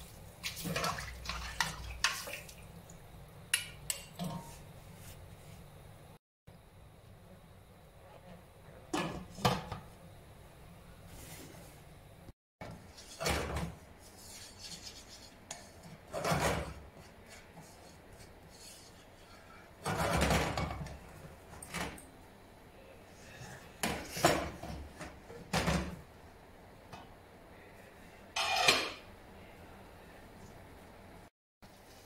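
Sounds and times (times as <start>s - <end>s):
pots and pans scraping and knocking: 12.6s - 21.0s, 28.4s - 29.0s.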